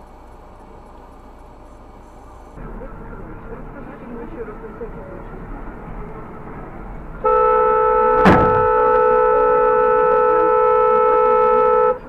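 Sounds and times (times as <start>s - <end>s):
road noise: 0.0s - 12.0s
vehicle horn blast: 7.2s - 12.0s
sharp knock: 8.2s - 8.8s.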